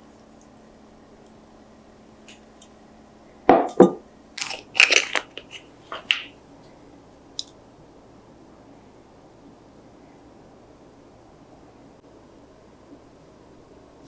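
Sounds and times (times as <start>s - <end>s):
glass jug knocking on wood: 3.5s - 4.0s
plastic tube crinkling: 4.4s - 6.3s.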